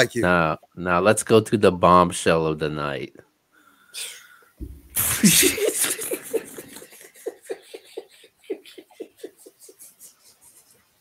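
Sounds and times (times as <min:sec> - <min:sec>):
man laughing: 0:05.0 - 0:10.8.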